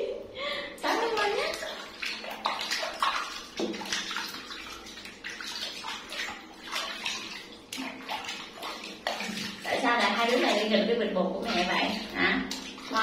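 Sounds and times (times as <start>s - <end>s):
water splashing in a bathtub: 0.7s - 13.0s.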